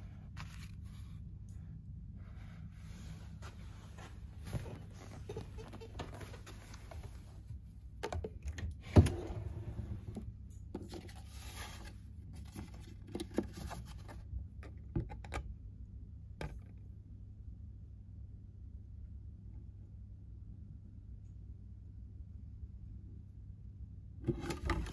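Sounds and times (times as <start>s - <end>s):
paper rustling: 0.3s - 1.2s
desk drawer opening: 8.8s - 10.2s.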